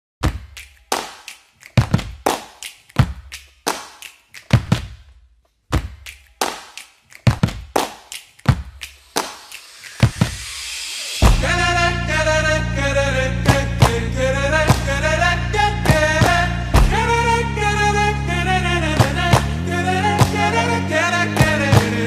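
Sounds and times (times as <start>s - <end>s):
rising hiss: 8.8s - 22.0s
sharp knocks with low boom: 11.2s - 11.6s, 15.9s - 17.0s.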